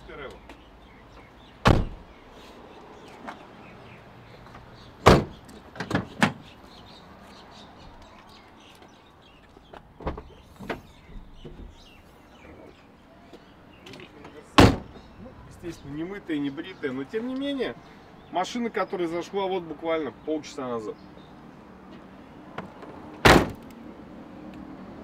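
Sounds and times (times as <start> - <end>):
car door clunks: 1.6 - 2.2, 5.0 - 6.4, 10.0 - 11.8, 14.6 - 15.1, 22.6 - 23.6
car door slamming: 1.6 - 2.2, 5.0 - 6.4, 14.6 - 15.1, 22.6 - 23.6.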